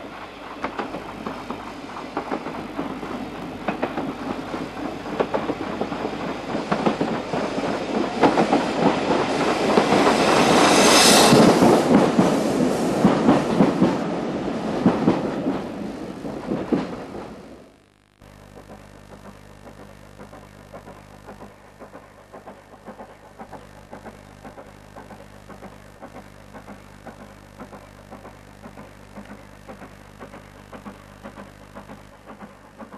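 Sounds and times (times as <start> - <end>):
steam hissing: 0.0 - 17.2
steam locomotive chuffing: 0.0 - 17.3, 26.6 - 32.9.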